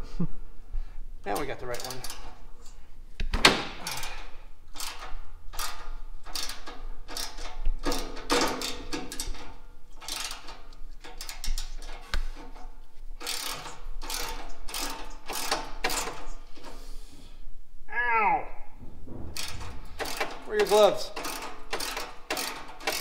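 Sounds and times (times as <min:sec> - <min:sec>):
ratchet wrench clicking: 0:01.3 - 0:02.3, 0:03.8 - 0:12.4, 0:13.2 - 0:16.4, 0:19.4 - 0:23.0.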